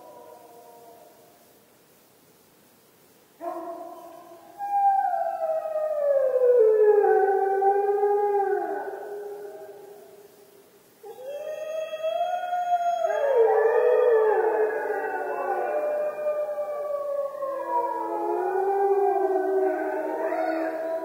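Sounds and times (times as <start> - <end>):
wolves howling: 4.6 - 9.7, 11.0 - 21.0.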